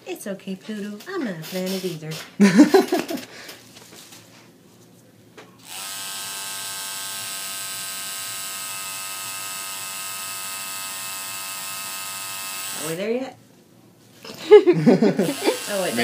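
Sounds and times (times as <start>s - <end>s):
tattoo machine buzzing: 5.6s - 13.0s, 15.2s - 16.0s.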